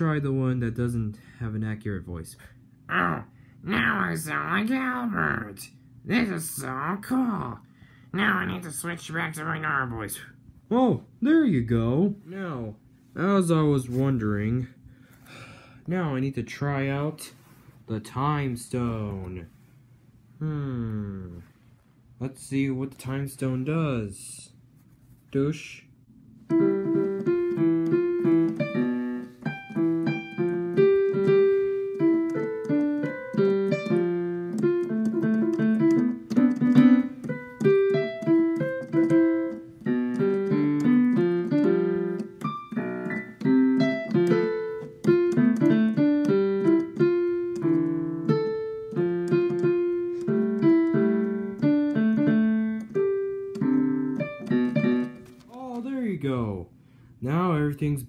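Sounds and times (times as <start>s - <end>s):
lively solo piano: 26.5s - 55.4s.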